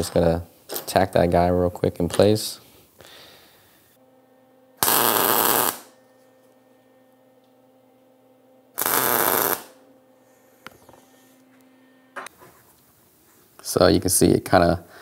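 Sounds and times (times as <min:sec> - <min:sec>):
faint steady hum: 0:00.0 - 0:15.0
welding crackling hiss: 0:04.8 - 0:05.9, 0:08.8 - 0:09.8.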